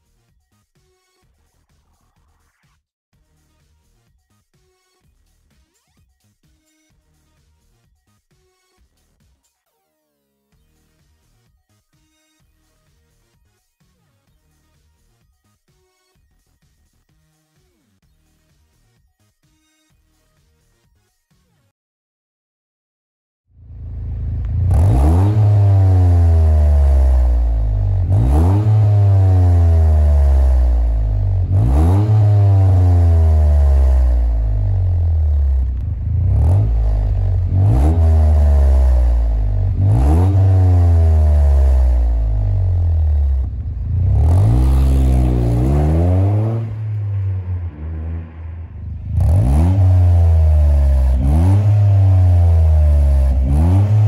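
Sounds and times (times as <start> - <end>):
car engine revving: 23.6 - 54.0.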